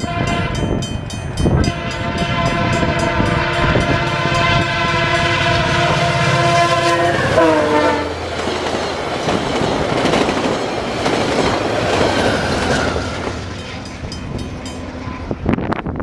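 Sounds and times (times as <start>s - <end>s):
diesel locomotive passing: 0.0s - 16.0s
passenger train rushing past: 0.0s - 16.0s
wheels clacking over rail joints: 6.0s - 15.3s.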